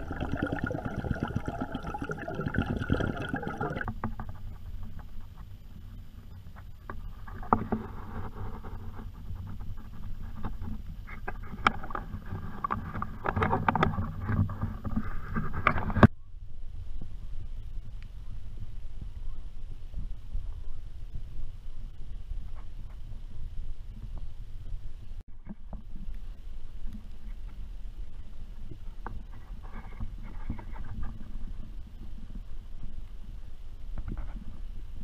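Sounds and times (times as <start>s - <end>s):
muffled underwater rushing water: 0.0s - 15.8s.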